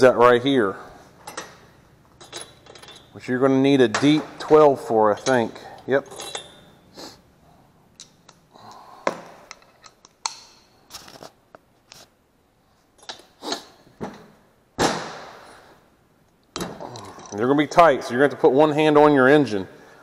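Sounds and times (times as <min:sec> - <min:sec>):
hand tools clinking and scraping: 0:01.2 - 0:03.3, 0:05.1 - 0:06.8, 0:16.6 - 0:17.6.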